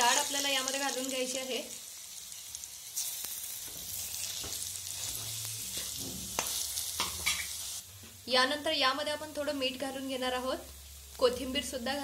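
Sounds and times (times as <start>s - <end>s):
paste sizzling in hot oil: 0.0s - 7.9s.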